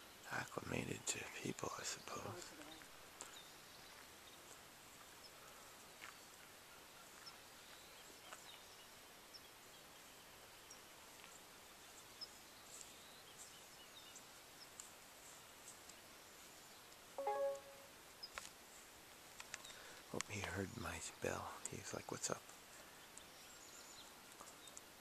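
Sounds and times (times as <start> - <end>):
open-air hiss: 0.0 - 25.0
faint high-pitched chirps: 17.2 - 17.9.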